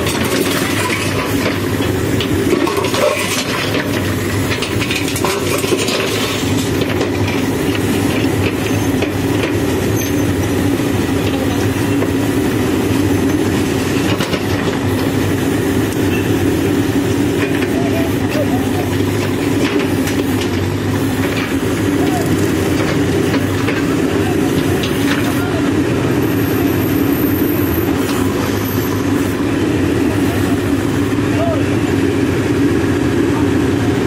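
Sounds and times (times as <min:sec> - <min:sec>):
bucket clanking and scraping gravel: 0:00.0 - 0:01.7, 0:02.4 - 0:07.4
diesel engine running under load: 0:00.0 - 0:34.0.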